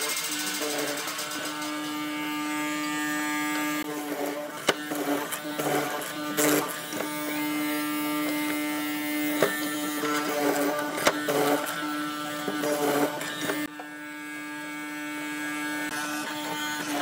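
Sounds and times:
electric motor buzzing: 0.0s - 17.0s
chisel knocking and rasping in wood: 3.8s - 13.9s.

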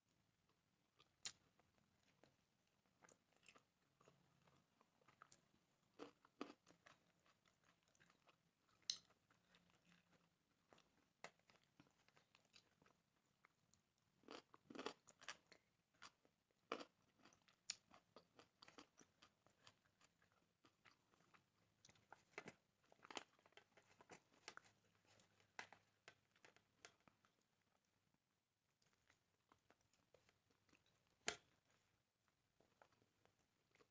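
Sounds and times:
person crunching and chewing food: 1.0s - 27.8s.

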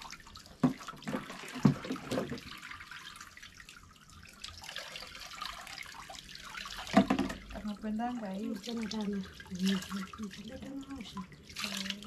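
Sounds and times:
water pouring into a basin: 0.0s - 12.0s.

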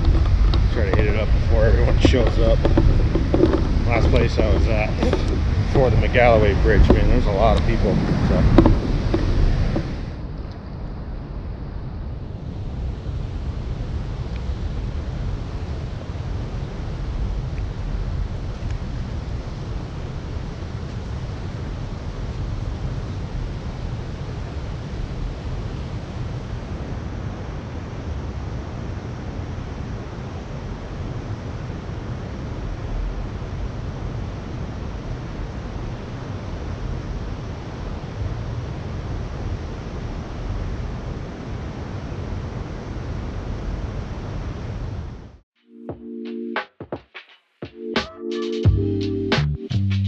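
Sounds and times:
river current rushing: 0.0s - 10.4s
low rumble on microphone: 0.0s - 45.3s.

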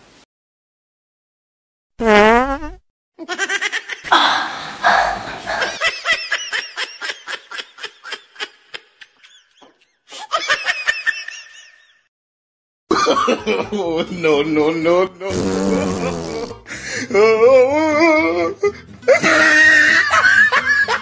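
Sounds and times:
high-pitched laughter: 19.1s - 21.0s.

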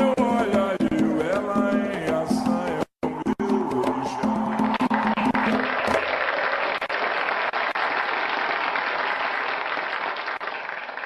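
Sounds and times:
person singing: 0.0s - 4.8s
drum beat: 0.0s - 6.1s
audience applause: 3.8s - 11.0s.

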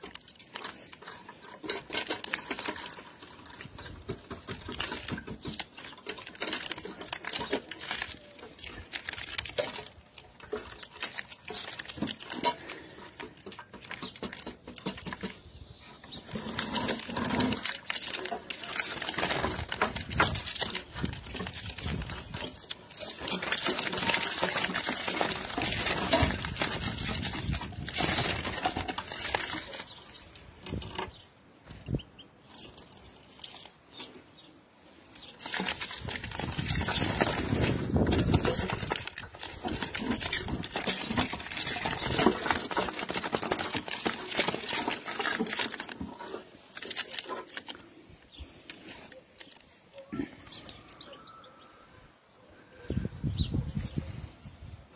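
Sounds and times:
birdcage handling clicks and knocks: 0.0s - 15.4s
birds scuffling and fluttering: 0.0s - 54.9s.

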